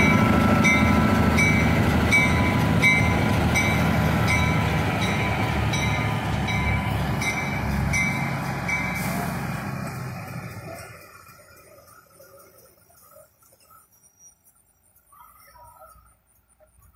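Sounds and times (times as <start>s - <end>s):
diesel locomotive engine running: 0.0s - 13.4s.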